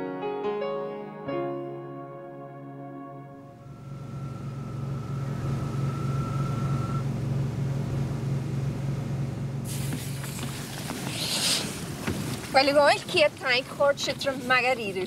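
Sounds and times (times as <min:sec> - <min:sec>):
boat engines droning: 0:03.2 - 0:15.0
thin high whine: 0:03.4 - 0:07.2.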